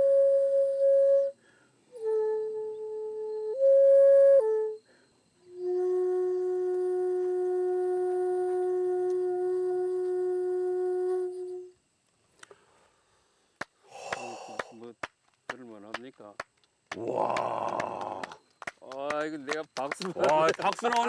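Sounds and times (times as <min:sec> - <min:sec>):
bamboo flute playing: 0:00.0 - 0:11.8.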